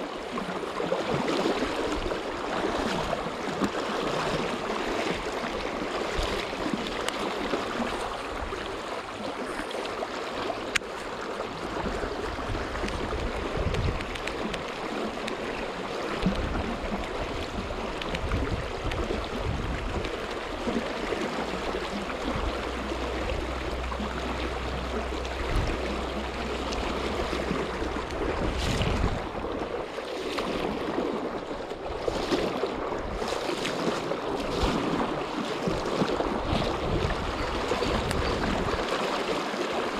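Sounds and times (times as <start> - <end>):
low rumble: 21.0 - 29.8.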